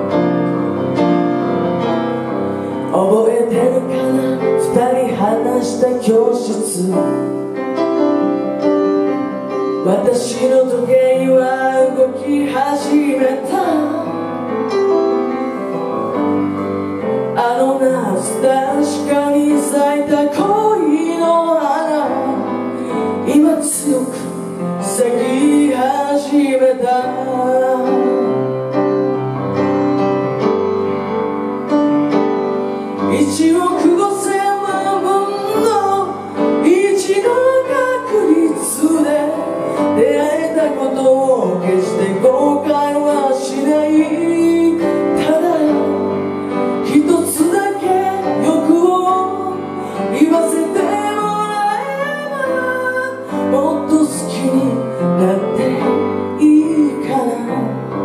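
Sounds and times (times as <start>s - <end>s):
piano accompaniment: 0.0s - 58.0s
woman singing a slow ballad: 2.8s - 7.6s, 9.8s - 14.3s, 17.3s - 28.5s, 33.0s - 58.0s.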